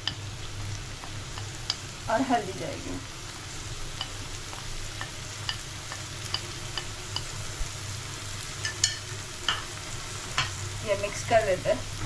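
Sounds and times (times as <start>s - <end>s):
masala sizzling in a frying pan: 0.0s - 12.0s
utensil clicking against pan: 1.0s - 1.8s, 4.0s - 7.4s.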